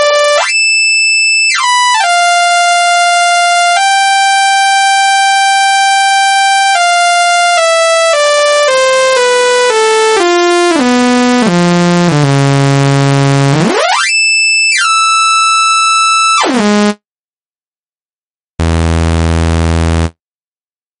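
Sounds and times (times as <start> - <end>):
low buzzing synth tone: 18.6 - 20.1
synthesizer tones sweeping: 18.6 - 20.1.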